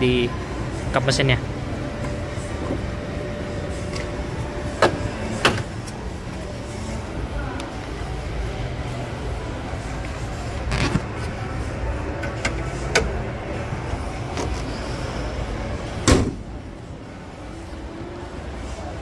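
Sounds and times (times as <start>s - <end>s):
car bonnet thumping shut: 16.0s - 16.6s.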